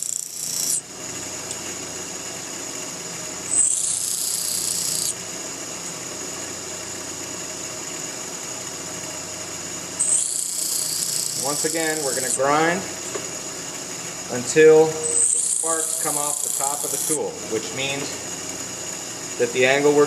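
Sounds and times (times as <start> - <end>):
high grinding hiss: 0.0 - 1.3, 3.4 - 5.2, 10.0 - 20.0
bench grinder humming: 0.0 - 19.7.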